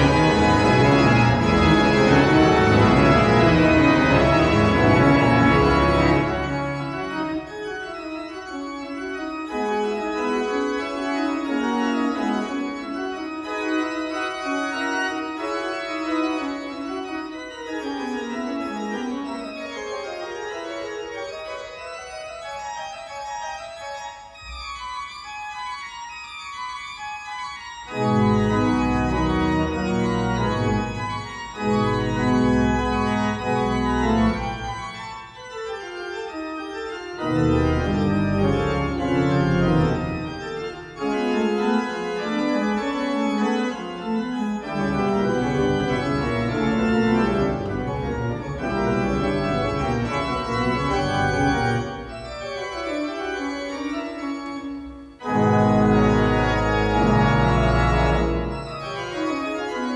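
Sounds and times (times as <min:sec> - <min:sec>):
organ pedal bass: 0:00.0 - 0:25.7, 0:26.8 - 0:59.9
pipe organ playing: 0:00.0 - 0:59.9.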